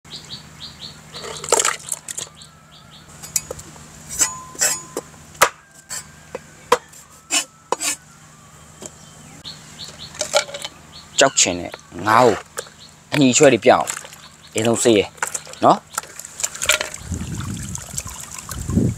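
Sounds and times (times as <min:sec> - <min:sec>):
knife clinking on metal plate: 0:03.2 - 0:05.1.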